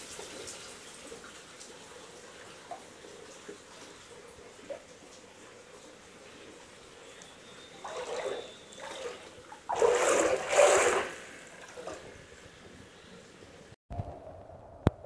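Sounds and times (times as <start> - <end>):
floodwater splashing: 7.6 - 12.6.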